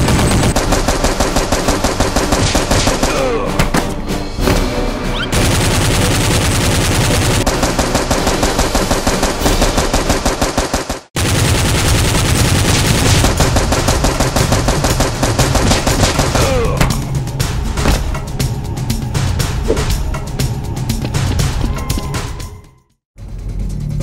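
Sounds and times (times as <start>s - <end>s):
machine-gun automatic fire: 0.0s - 3.1s, 5.3s - 16.4s.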